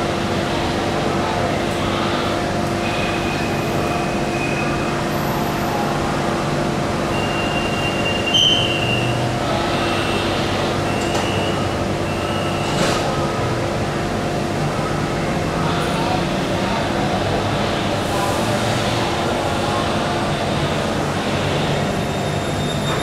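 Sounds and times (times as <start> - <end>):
electric train hum: 0.0 - 23.0
high wheel squeals: 7.1 - 12.8, 21.7 - 23.0.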